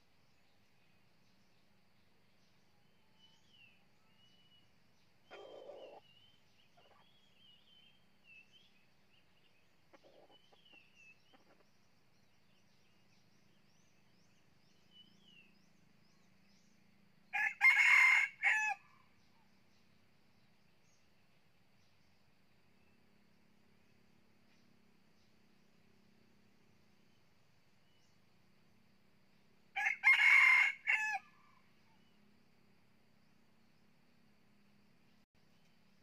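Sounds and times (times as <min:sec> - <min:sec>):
rooster crowing: 0:17.3 - 0:18.9, 0:29.8 - 0:31.4.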